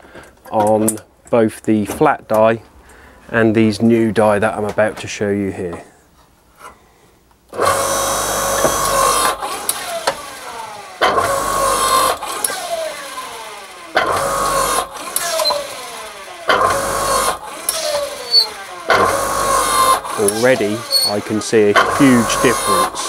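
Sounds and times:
log splitter motor and pump: 7.5s - 23.0s
descending hydraulic whine: 7.6s - 23.0s.

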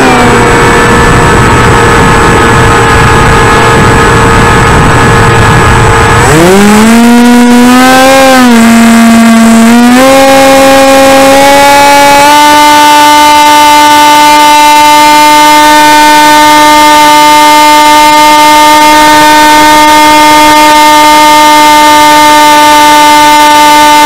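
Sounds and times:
propeller motor whine: 0.0s - 16.8s.

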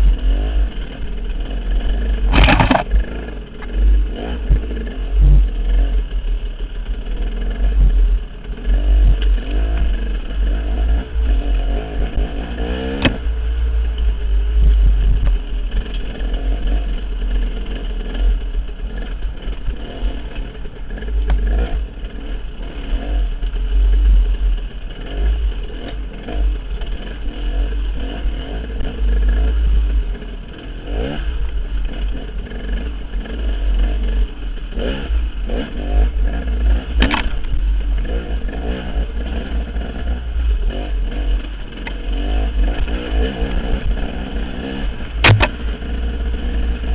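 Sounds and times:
dirt bike engine revving: 0.0s - 14.5s, 15.8s - 46.9s
sharp knocks: 45.2s - 45.6s.

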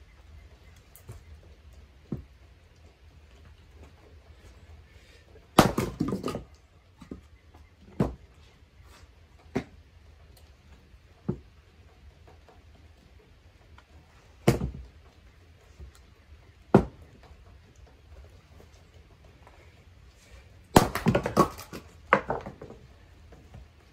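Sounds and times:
split wood pieces knocking together: 5.5s - 7.2s, 20.7s - 22.9s
maul striking wood: 5.6s - 7.2s, 14.4s - 14.8s, 16.7s - 17.0s, 20.8s - 22.8s.

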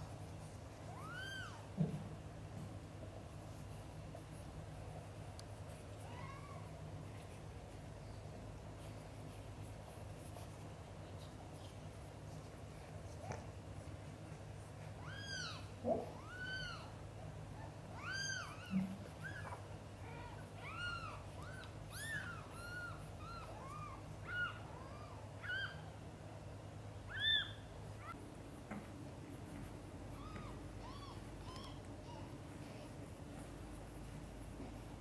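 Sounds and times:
faint low hum: 0.0s - 35.0s
kittens mewing: 0.9s - 2.0s, 15.0s - 26.0s, 30.1s - 32.4s.

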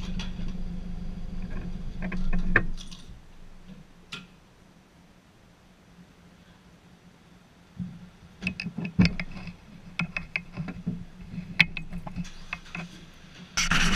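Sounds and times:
steady low hum: 0.0s - 13.9s
sharp clicks and knocks: 1.4s - 4.4s, 7.8s - 13.9s.

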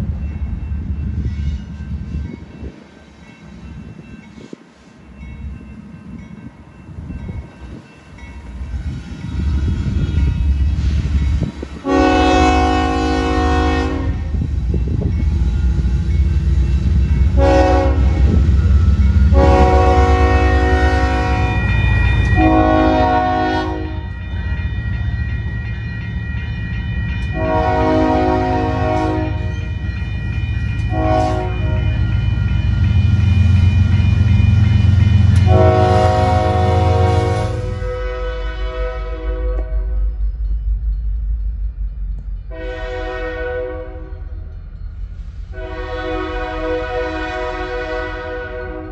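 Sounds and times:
locomotive air horn blasts: 11.8s - 14.4s, 17.3s - 18.5s, 19.3s - 24.2s, 27.3s - 29.5s, 30.9s - 32.1s, 35.3s - 40.0s, 42.5s - 44.2s, 45.5s - 48.9s.

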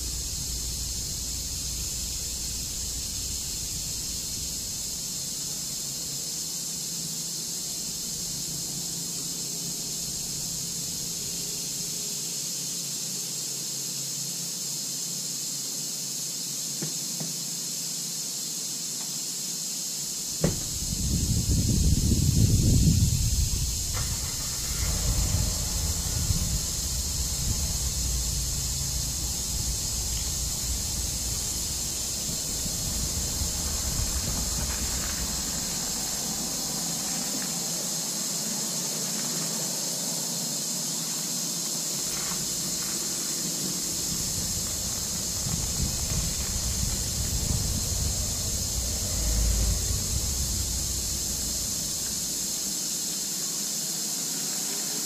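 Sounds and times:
wind buffeting microphone: 0.0s - 5.8s, 20.3s - 37.1s, 42.1s - 52.6s
steady high-pitched hiss: 0.0s - 55.0s.

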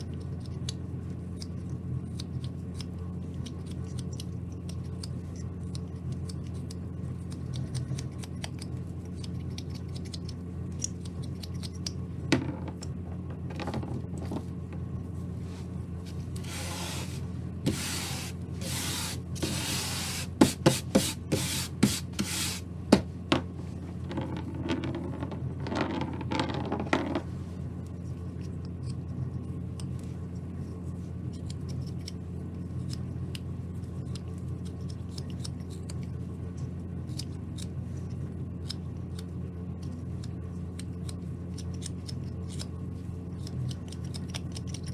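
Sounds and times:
steady low hum: 0.0s - 44.9s
wood chips scraped across mat: 16.4s - 22.7s
knife shaving wood: 27.6s - 44.9s.

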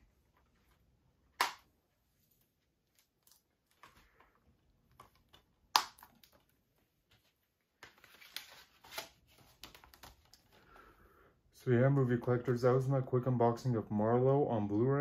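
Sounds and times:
plastic case snapping: 4.9s - 6.4s.

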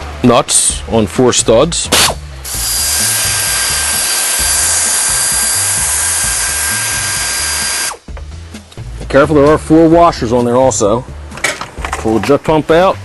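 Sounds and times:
power tool running: 2.4s - 8.0s.

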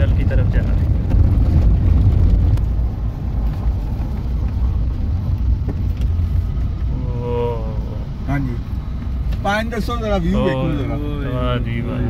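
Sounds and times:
car road rumble: 0.0s - 12.0s.

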